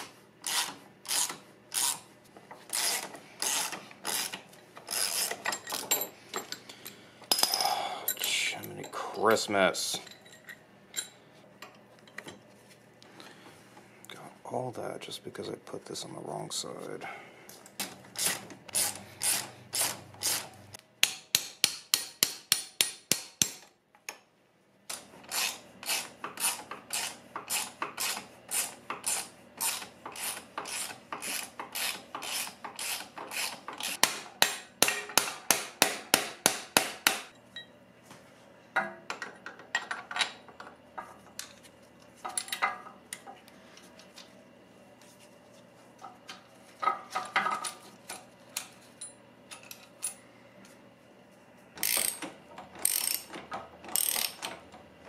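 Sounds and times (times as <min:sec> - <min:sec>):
ratchet wrench clicking: 0:51.8 - 0:52.2, 0:52.8 - 0:53.3, 0:53.9 - 0:54.5.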